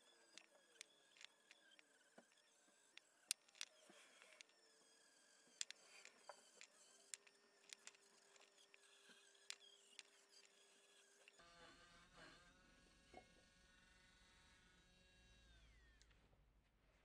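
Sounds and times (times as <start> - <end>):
rotary tool bit clicking on metal: 0.0 - 11.4.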